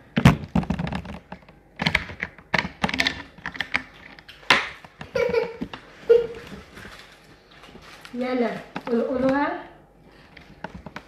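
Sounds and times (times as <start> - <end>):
people chewing food: 0.8 - 8.2
paper wrappers rustling: 6.0 - 9.4.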